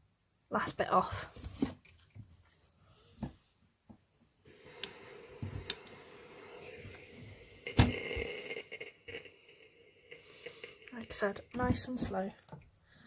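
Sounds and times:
steam iron hissing: 4.4 - 11.0.

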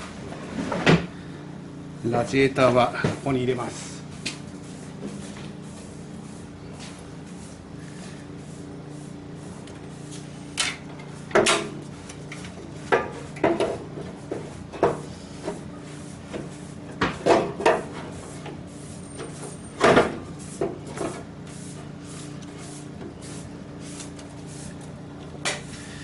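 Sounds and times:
steady low hum: 0.0 - 26.0
knocks and clunks against metal: 12.8 - 15.6.

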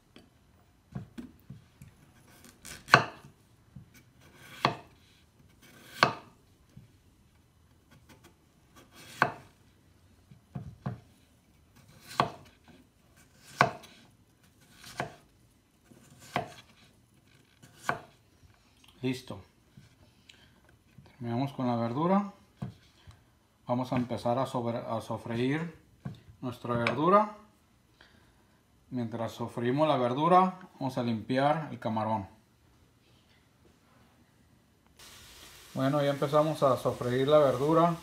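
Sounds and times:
knife chopping on wooden board: 2.2 - 6.4, 7.9 - 9.5, 11.8 - 12.6, 13.2 - 15.2, 15.8 - 16.7, 17.6 - 18.2.

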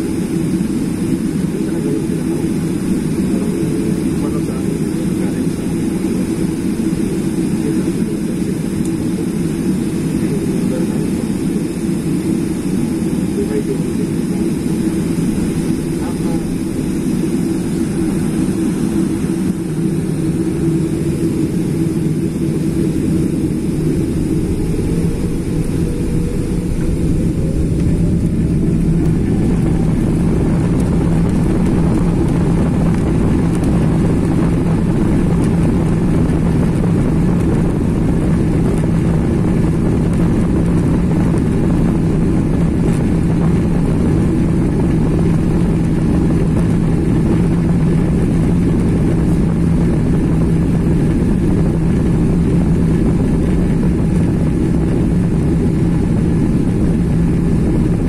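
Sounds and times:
jet engines spooling up: 0.0 - 58.0
runway rolling noise: 13.4 - 58.0.

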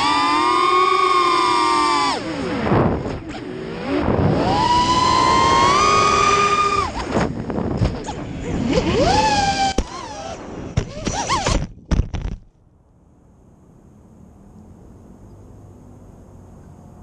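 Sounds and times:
quadcopter motors whining: 0.0 - 11.6
wind rush: 2.2 - 10.8.

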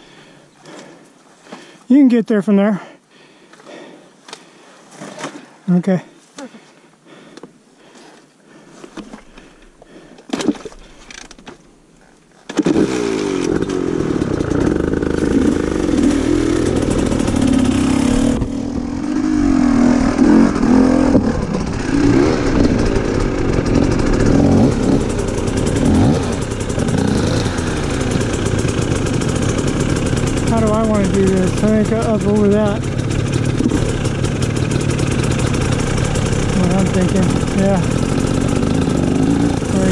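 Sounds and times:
dirt bike engine running: 12.6 - 39.9.

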